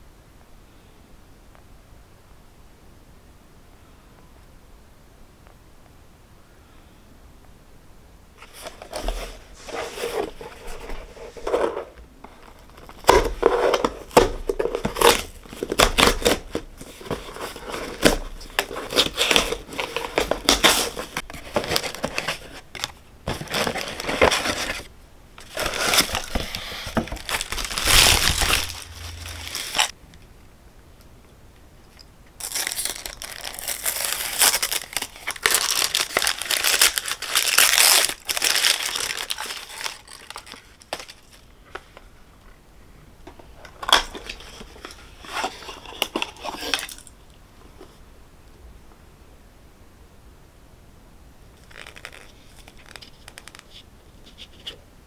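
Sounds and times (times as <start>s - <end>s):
tissue paper crinkling: 8.4s - 29.9s, 32.4s - 41.4s, 51.6s - 53.8s
packing paper crinkling: 8.4s - 30.0s, 32.4s - 41.9s, 43.7s - 47.1s, 51.6s - 53.8s
cardboard box flaps rustling: 25.4s - 29.9s.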